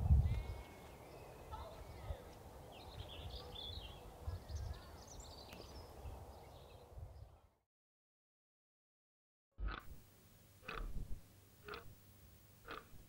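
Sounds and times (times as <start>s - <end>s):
small birds chirping: 0.0s - 7.4s
wind gusting on microphone: 0.0s - 7.4s.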